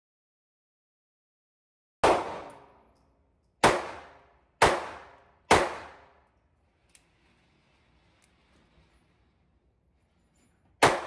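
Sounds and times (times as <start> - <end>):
pistol shots echoing indoors: 2.0 - 6.3, 10.8 - 11.0.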